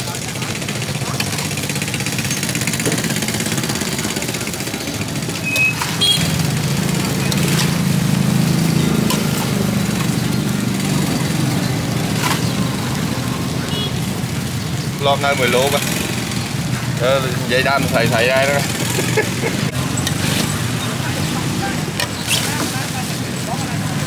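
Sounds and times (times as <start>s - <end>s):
engine running: 0.0s - 24.0s
clicks and clatter: 0.1s - 13.4s
short high beep: 5.4s - 6.3s.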